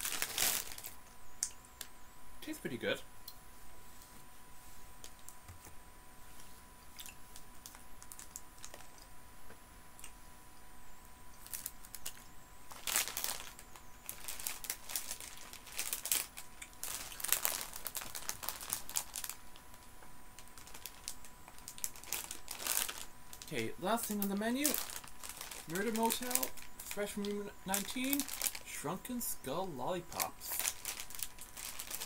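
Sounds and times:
plastic packaging crinkling: 0.0s - 1.0s, 7.3s - 9.0s, 11.4s - 29.4s, 30.0s - 32.0s.

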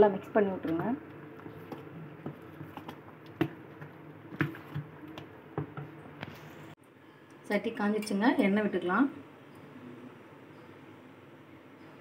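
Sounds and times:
batter squishing: 0.6s - 6.7s.

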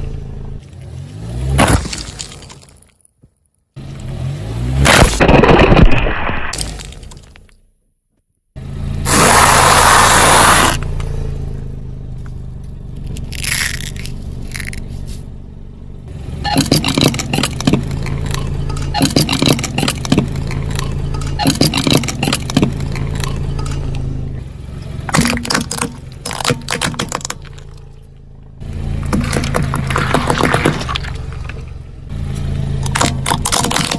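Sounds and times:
low engine hum: 0.0s - 1.6s, 8.6s - 33.9s.

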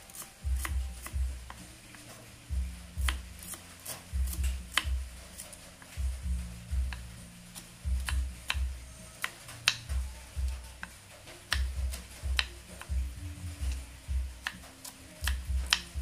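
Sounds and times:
knife clicking on wooden board: 4.7s - 5.0s, 9.2s - 9.9s, 11.5s - 13.0s, 14.4s - 15.9s.

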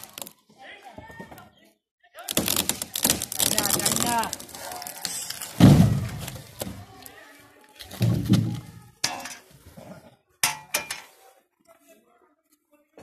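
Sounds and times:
logs knocking together: 2.2s - 7.0s, 7.8s - 9.4s
heavy wooden thud: 5.6s - 6.8s.

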